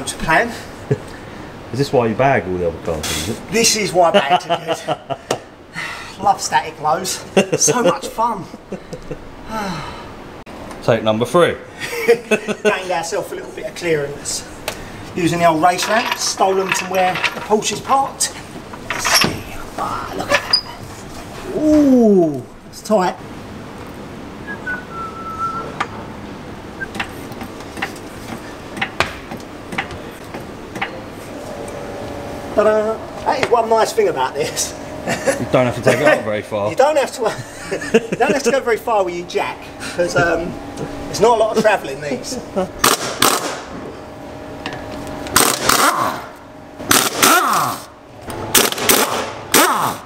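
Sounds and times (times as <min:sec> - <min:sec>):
impact wrench hammering: 0:42.8 - 0:43.6, 0:45.3 - 0:46.2, 0:46.9 - 0:47.6.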